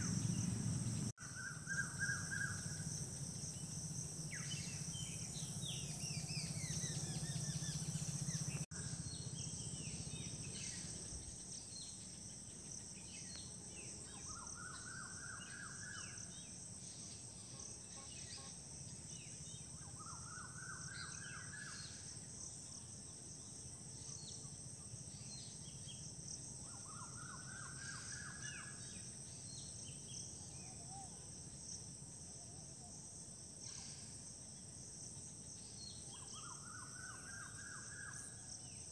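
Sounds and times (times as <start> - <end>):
low hum: 0.0 - 1.1
high insect drone: 0.0 - 38.9.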